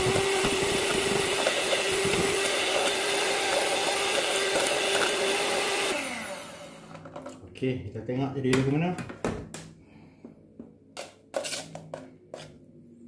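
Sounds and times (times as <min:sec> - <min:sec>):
electric hand mixer whisking: 0:00.0 - 0:07.1.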